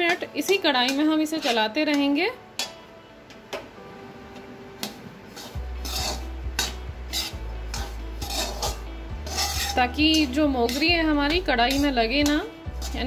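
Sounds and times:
metal spatula scraping metal pan: 0.1 - 2.0, 5.3 - 13.0.

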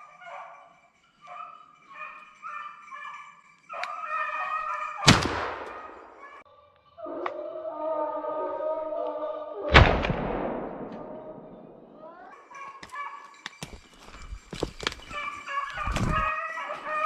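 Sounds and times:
dogs baying: 0.0 - 9.6, 10.9 - 17.0
loud shotgun shot echoing: 5.1 - 5.8, 9.7 - 12.0.

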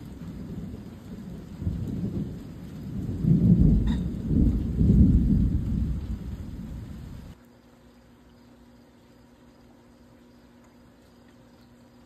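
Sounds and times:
thunder rumbling: 0.0 - 7.4.

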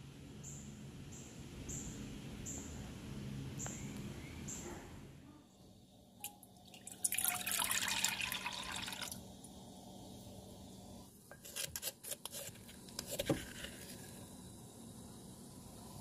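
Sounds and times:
liquid splashing pour: 6.6 - 9.2.

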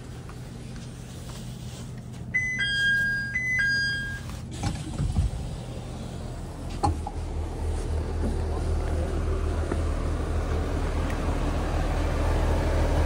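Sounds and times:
railcar engine hum: 0.0 - 13.0
two-note door chime: 2.4 - 4.3.

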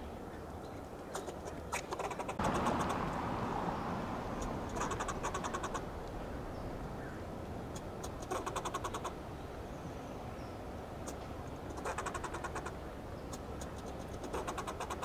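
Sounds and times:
squirrel clucking alarm barks: 1.1 - 3.2, 4.3 - 6.0, 7.7 - 9.2, 11.0 - 15.0
rushing noise: 2.4 - 9.2.

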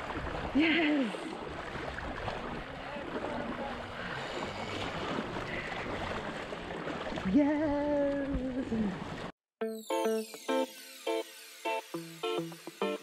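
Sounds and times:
sea water sloshing and splashing: 0.0 - 9.4.

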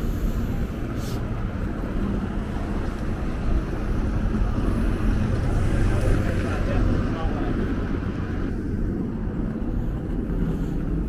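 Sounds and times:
city traffic rumble: 0.0 - 11.0
wind buffeting microphone: 0.0 - 11.0
brief hiss: 1.0 - 1.2.

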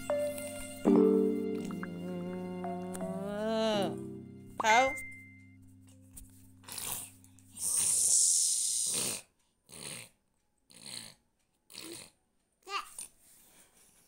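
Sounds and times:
toddler sputtering through lips: 6.6 - 10.0, 10.7 - 13.2.

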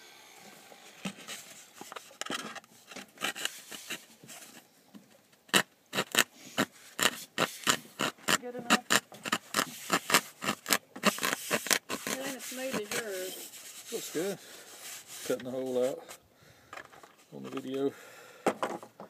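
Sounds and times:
jigsaw rasping through gourd shell: 3.2 - 4.1, 5.5 - 15.8.

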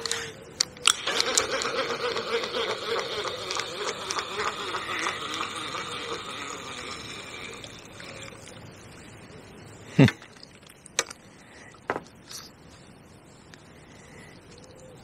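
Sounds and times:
fishing reel clicks: 0.0 - 8.5.

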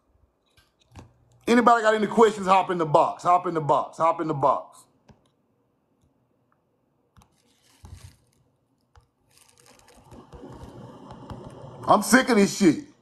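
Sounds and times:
soft rustle: 7.2 - 8.5, 9.2 - 10.1.

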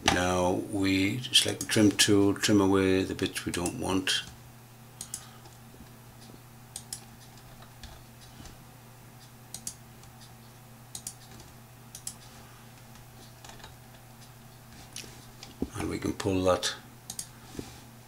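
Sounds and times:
low electrical hum: 0.0 - 18.0
computer mouse clicks: 5.0 - 5.3, 6.2 - 8.0, 9.5 - 10.2, 10.9 - 12.3, 17.1 - 17.3.

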